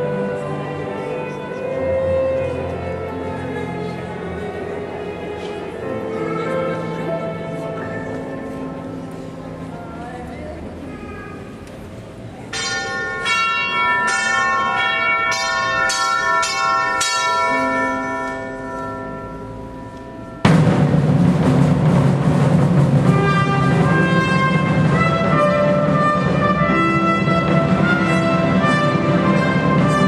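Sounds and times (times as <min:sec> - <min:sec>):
bells ringing: 0:12.5 - 0:21.1
instrumental ensemble music: 0:12.5 - 0:30.0.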